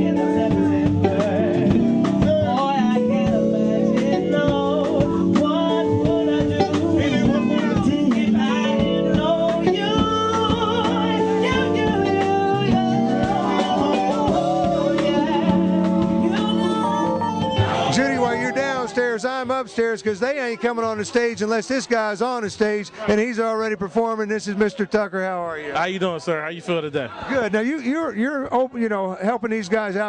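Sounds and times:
man singing into microphone: 0.0s - 19.8s
live band playing: 0.0s - 25.0s.

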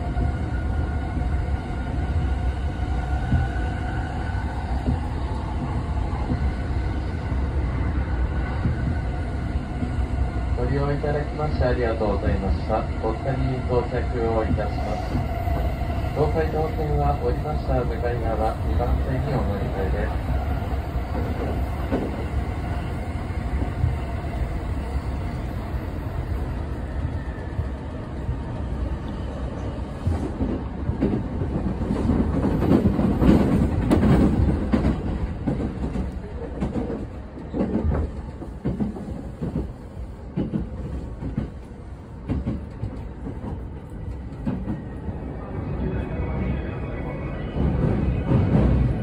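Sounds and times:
train wheels rumbling on rails: 0.0s - 49.0s
clickety-clack knocks: 21.2s - 22.2s, 30.0s - 44.8s.

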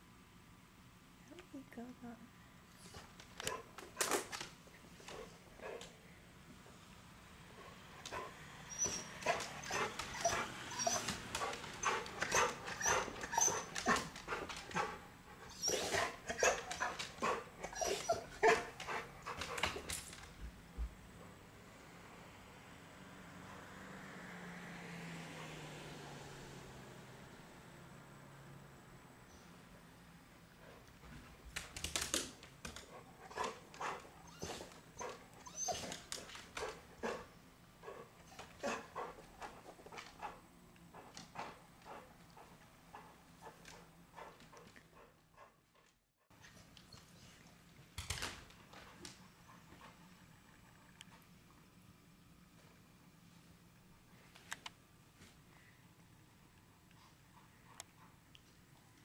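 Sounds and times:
dog whining: 8.2s - 19.0s, 33.3s - 36.3s.

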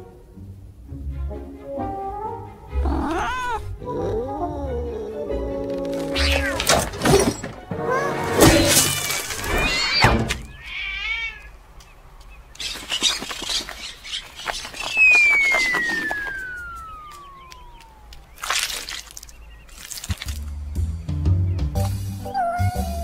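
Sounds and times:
descending cartoon whistle: 14.7s - 18.1s.

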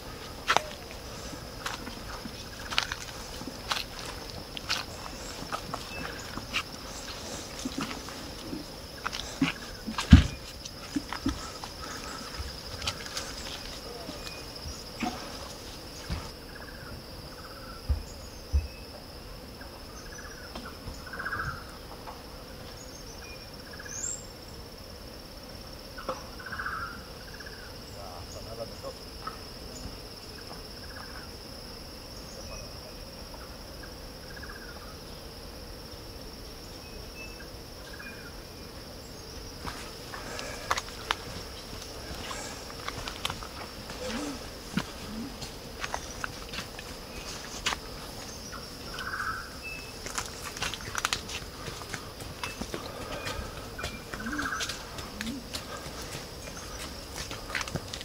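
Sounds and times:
footsteps on leaf litter: 0.0s - 16.3s, 39.6s - 58.0s
insects droning: 0.0s - 58.0s
soft scuffs: 39.6s - 49.3s.

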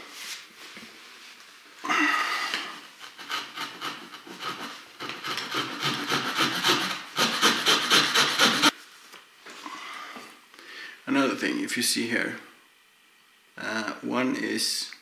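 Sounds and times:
saw blade sawing wood: 3.0s - 8.7s.

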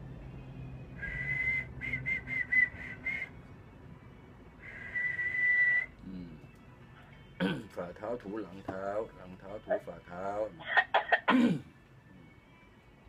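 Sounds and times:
man whistling: 1.0s - 3.4s, 4.6s - 6.1s.

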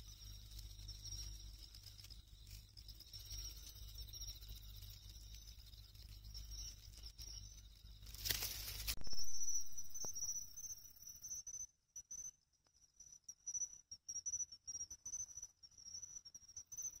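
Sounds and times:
cricket trilling: 0.0s - 11.5s.

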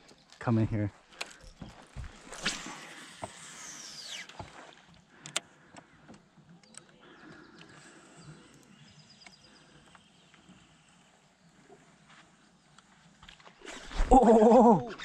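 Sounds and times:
fishing reel spool whining: 2.6s - 4.4s.

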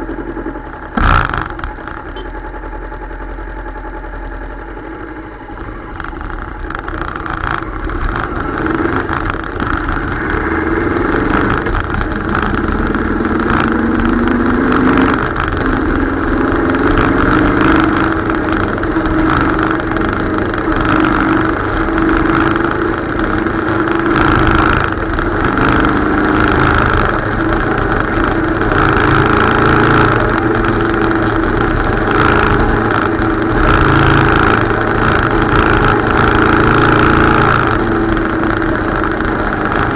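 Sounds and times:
motorcycle engine accelerating: 0.0s - 39.9s.

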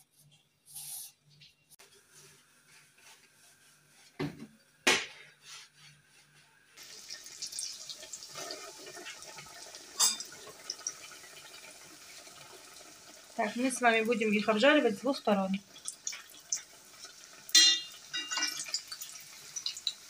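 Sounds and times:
doughnuts sizzling in hot oil: 6.8s - 20.0s.

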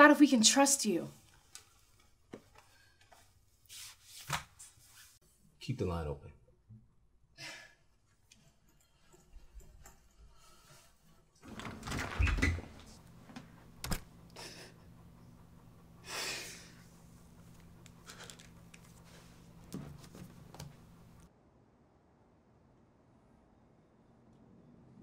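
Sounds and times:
door shutting with heavy thud: 11.4s - 13.0s.

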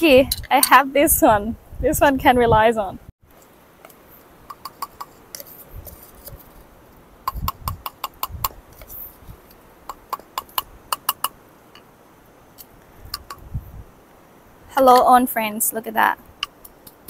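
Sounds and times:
wooden spoon tapping cup and mortar: 13.2s - 13.4s.

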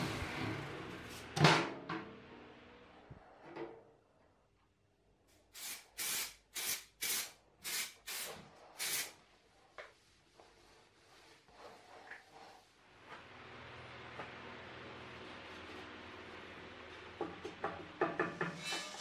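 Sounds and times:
aerosol spray hissing: 5.6s - 9.2s.

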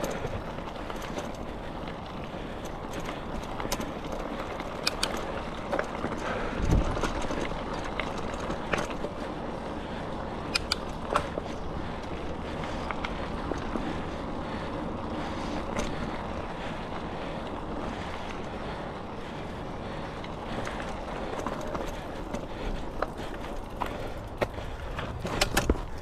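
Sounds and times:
wind rushing over microphone: 6.5s - 7.1s.

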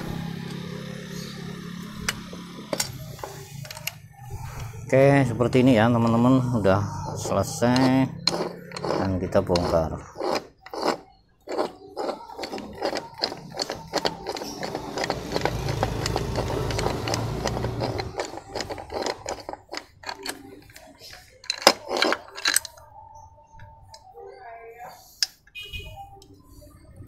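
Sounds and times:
metal clinking and knocking: 1.8s - 4.0s, 7.1s - 22.8s.

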